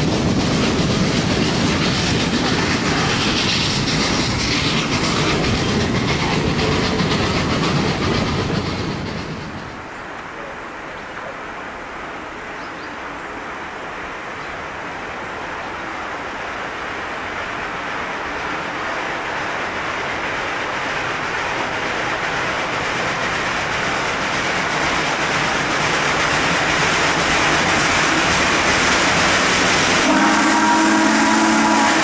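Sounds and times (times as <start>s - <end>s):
steam locomotive rushing: 0.0s - 32.0s
steam whistle blowing: 30.0s - 32.0s.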